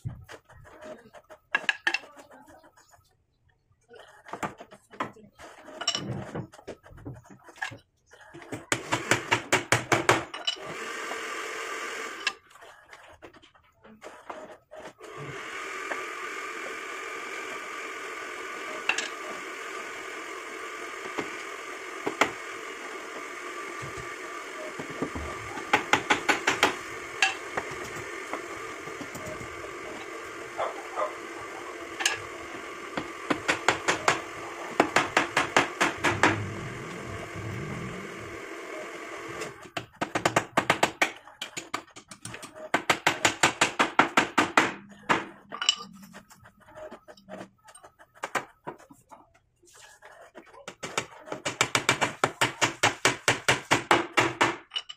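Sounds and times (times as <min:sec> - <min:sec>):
steady hum: 0:16.6 - 0:39.7
hammer driving nails into wood: 0:50.8 - 0:54.7.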